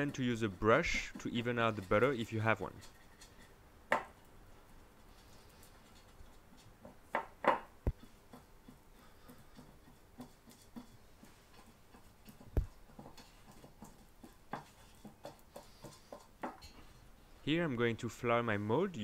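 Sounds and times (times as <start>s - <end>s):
pastry brush tapping mold: 6.5s - 16.7s.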